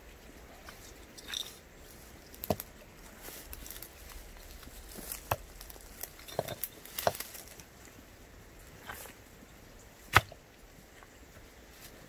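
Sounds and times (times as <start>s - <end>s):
stones knocking: 4.9s - 7.5s.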